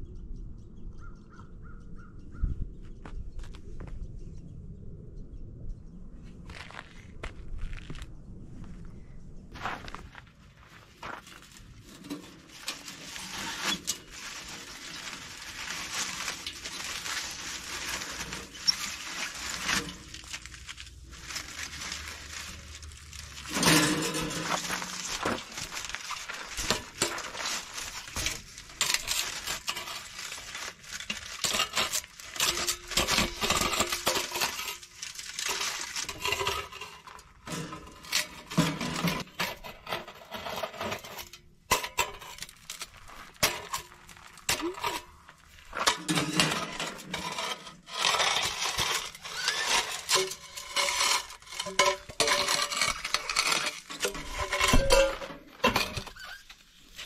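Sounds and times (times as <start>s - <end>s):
metal stovepipe scraping and clinking: 11.8s - 20.5s, 21.2s - 57.0s.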